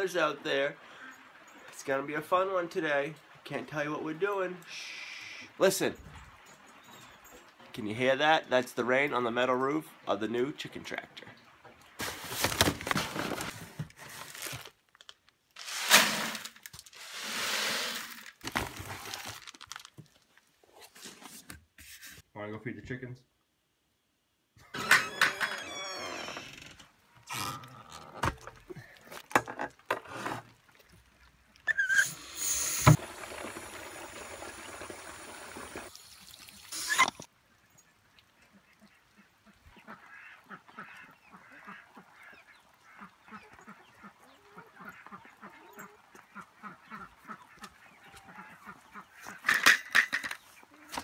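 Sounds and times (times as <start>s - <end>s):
hose running water into jug: 15.6s - 19.5s, 31.6s - 37.3s
ducks quacking: 38.0s - 49.5s.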